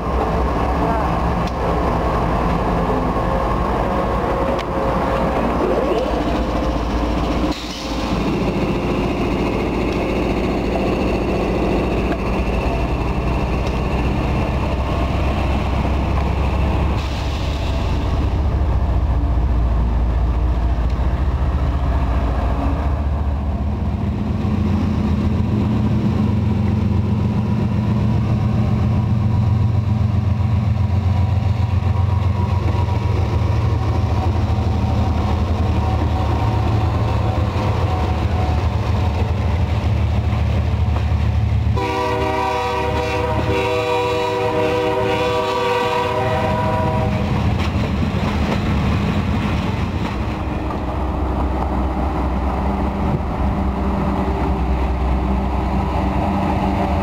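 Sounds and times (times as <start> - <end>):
deeper locomotive engine note: 0.0 - 47.5
locomotive engine drone: 0.0 - 57.0.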